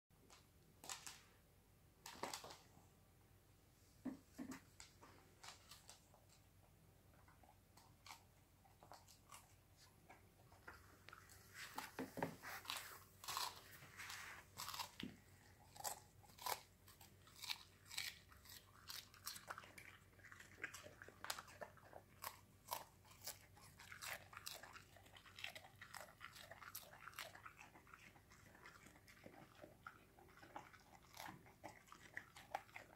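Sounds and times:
dog crunching lettuce: 7.4 - 32.9.

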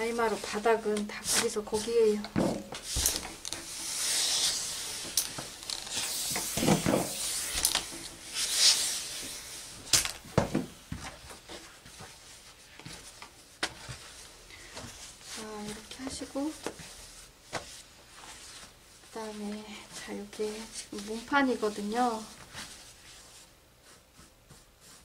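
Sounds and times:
fabric rustling: 0.0 - 25.0
steam iron hissing: 2.9 - 9.7.

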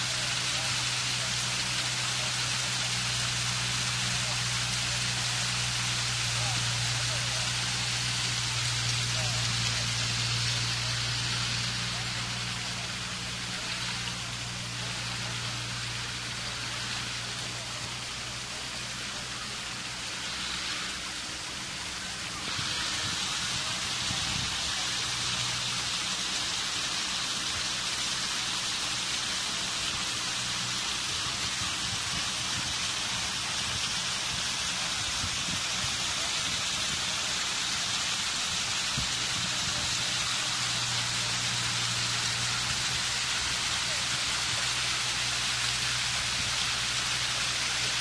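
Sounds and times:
fountain water splashing over rocks: 0.0 - 48.0.

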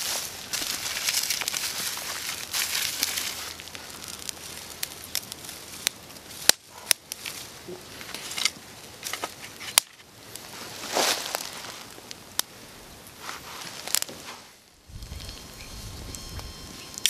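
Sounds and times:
campfire crackling: 0.0 - 17.0
sticks shifted on fire: 13.1 - 14.7.

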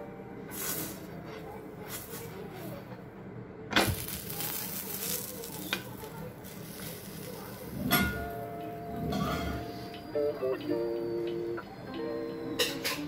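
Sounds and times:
food sizzling in a frying pan: 3.8 - 8.4.

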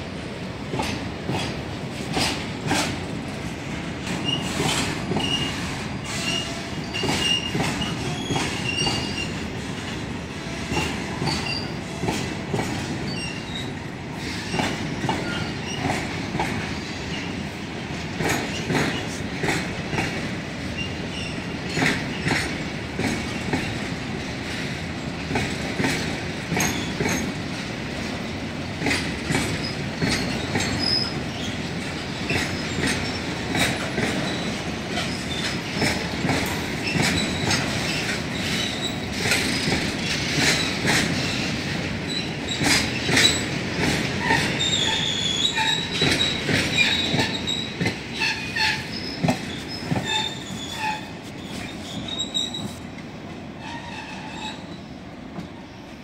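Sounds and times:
clickety-clack over rail joints: 0.0 - 56.0
train wheels rumbling: 0.0 - 56.0
wheel squeal: 4.2 - 9.4, 10.7 - 11.8, 13.1 - 15.9, 30.0 - 31.6, 44.2 - 52.8, 53.6 - 55.0.

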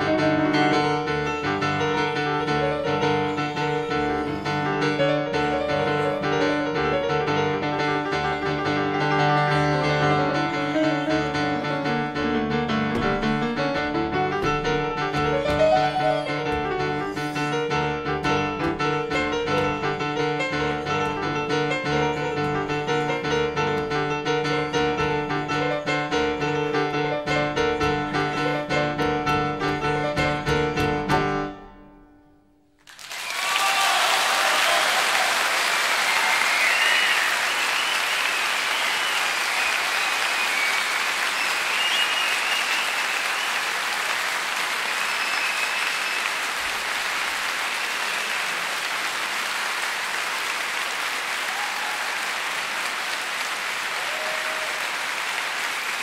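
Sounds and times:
piano playing repeated chords: 0.0 - 32.7
audience applause: 15.1 - 17.7, 32.8 - 56.0.

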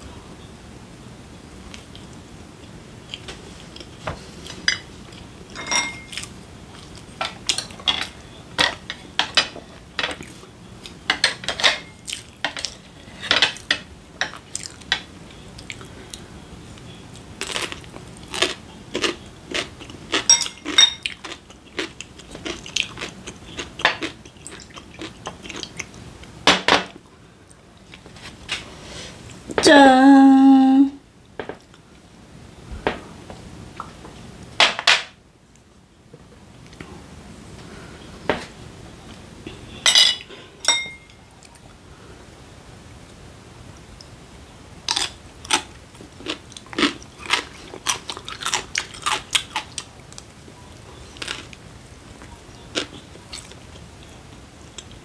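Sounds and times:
chopsticks clinking on ceramic plates: 5.6 - 6.2, 20.1 - 21.2, 39.8 - 41.2.

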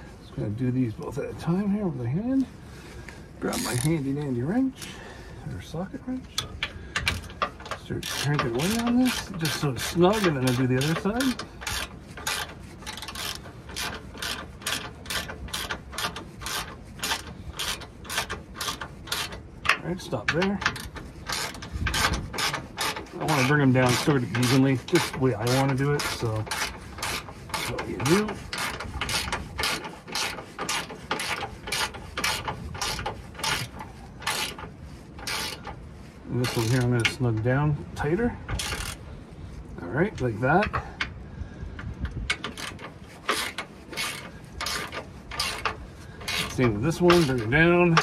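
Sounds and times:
ratcheting socket wrench clicking: 6.4 - 25.1, 35.2 - 35.6, 36.4 - 37.2, 38.5 - 39.0
socket wrench ratchet clicking: 38.5 - 39.0.

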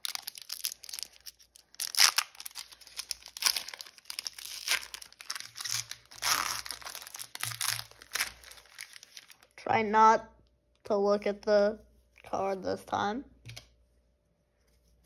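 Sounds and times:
foil wrapper tearing and crinkling: 0.0 - 9.5.

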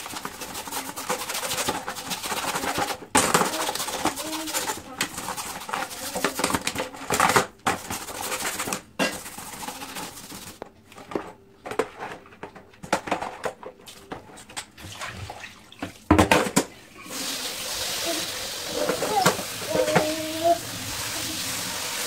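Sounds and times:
brush scrubbing metal mesh: 0.0 - 6.6, 7.8 - 10.6, 17.1 - 22.0
water splashing: 17.1 - 22.0
filter knocking against basin: 18.8 - 20.4.

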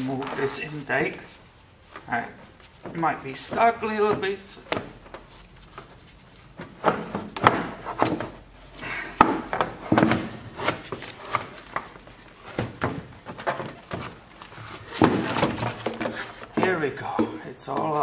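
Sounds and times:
plastic duct knocks and thumps: 2.8 - 8.5, 9.1 - 18.0
plastic rubbing: 9.4 - 18.0.

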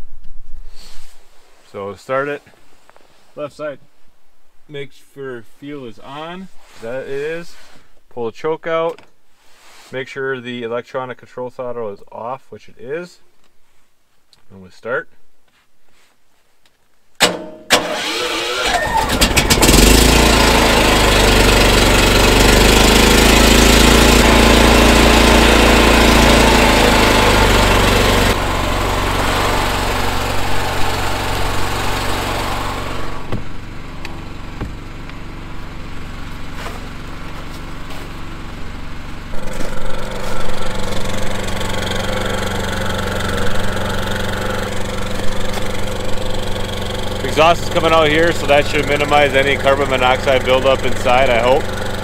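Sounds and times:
generator engine running: 17.7 - 52.0.

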